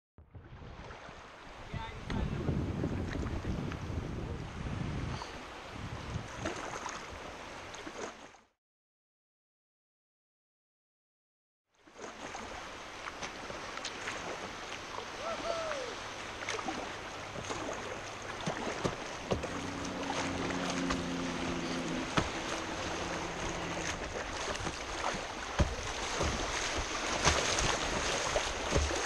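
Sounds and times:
river water rushing: 0.8 - 2.0, 12.1 - 29.0
sharp water splashes: 6.3 - 8.4, 11.8 - 29.0.

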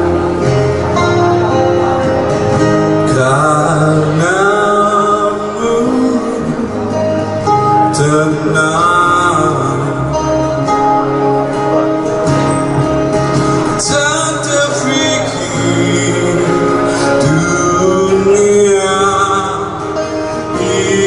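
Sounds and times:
acoustic guitar: 0.0 - 21.0
man singing: 2.8 - 11.0, 13.6 - 21.0.

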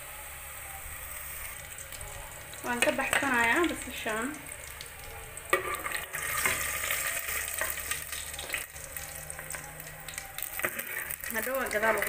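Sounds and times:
onions sizzling in hot oil: 0.0 - 12.0
metal spoon scraping a pot: 5.5 - 7.9.

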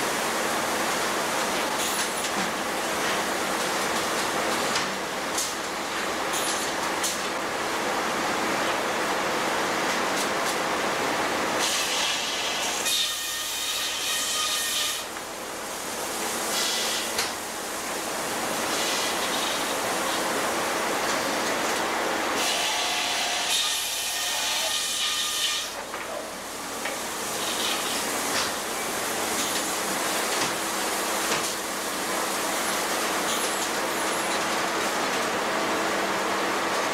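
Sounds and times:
saw whining through wood: 22.4 - 25.8.

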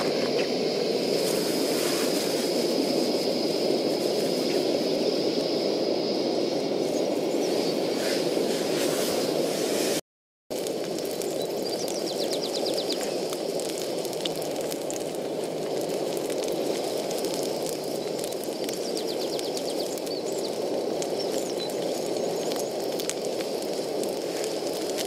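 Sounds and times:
gas burner rushing: 0.0 - 10.0
sausage sizzling in a frying pan: 0.0 - 25.0.

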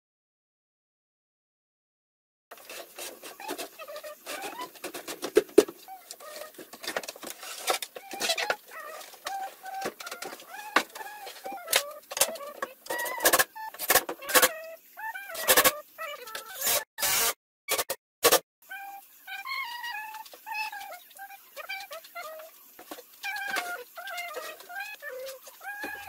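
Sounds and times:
birds calling: 2.6 - 17.2, 18.6 - 26.0
cordless drill driving screws: 16.6 - 17.4.

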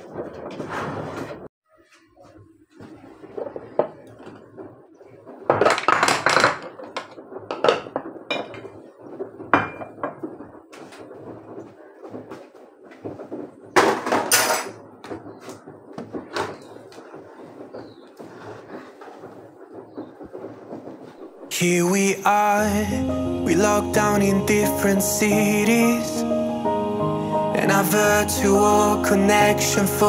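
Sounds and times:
dishes and cutlery clattering: 5.5 - 8.8, 9.6 - 10.2, 13.9 - 14.8.

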